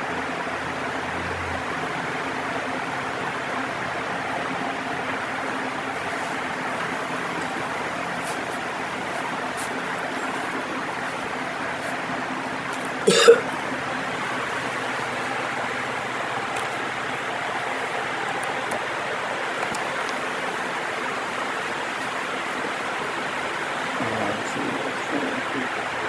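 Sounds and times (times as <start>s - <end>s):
electric fan rushing air: 0.0s - 26.0s.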